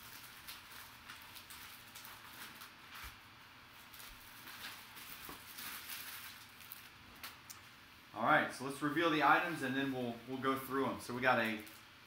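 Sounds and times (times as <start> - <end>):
plastic bag crinkling: 0.0 - 7.5.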